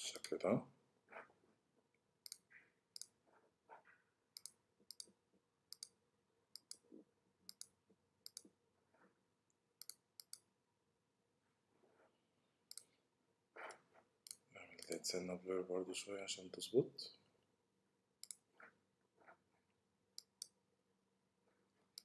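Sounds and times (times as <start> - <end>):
faint computer clicks: 0.1 - 0.4, 14.2 - 15.1.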